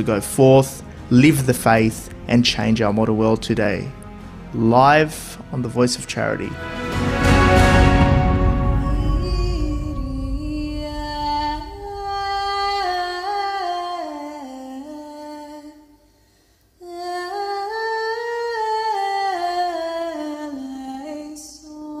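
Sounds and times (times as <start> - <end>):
slow wordless melody: 0.0 - 16.2.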